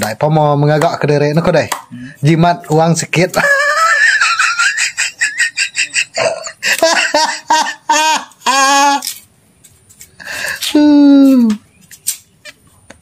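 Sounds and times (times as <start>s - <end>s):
person laughing: 3.3s - 9.2s, 10.4s - 11.6s
person making short ha sounds: 10.5s - 11.6s.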